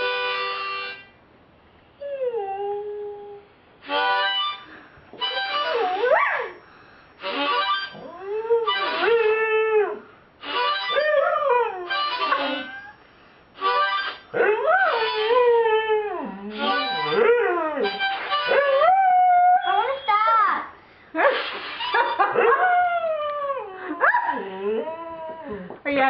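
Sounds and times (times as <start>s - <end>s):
harmonica short notes: 0.0s - 1.1s, 3.8s - 8.0s, 8.7s - 9.3s, 10.4s - 11.1s, 11.8s - 15.5s, 16.5s - 18.8s, 21.3s - 22.2s
dog howling: 14.4s - 20.4s, 22.3s - 25.6s.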